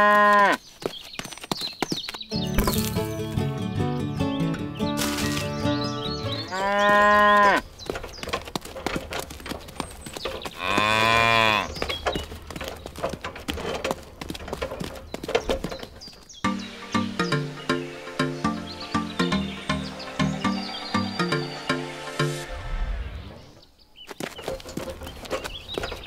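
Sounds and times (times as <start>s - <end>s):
cattle mooing: 6.4s - 7.6s, 10.6s - 11.8s.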